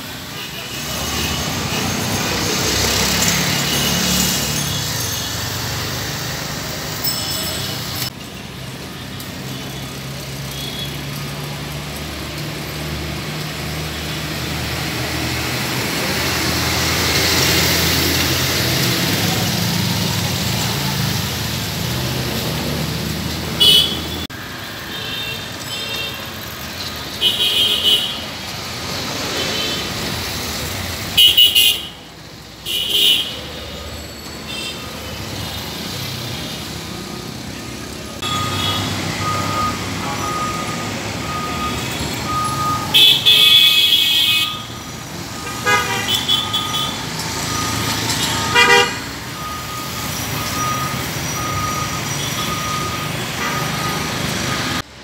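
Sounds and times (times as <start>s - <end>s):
road traffic: 0.0s - 55.0s
vehicle horns honking: 23.6s - 24.3s, 27.2s - 28.3s, 31.2s - 32.0s, 32.6s - 33.6s, 38.2s - 41.4s, 42.3s - 47.1s, 48.1s - 49.8s.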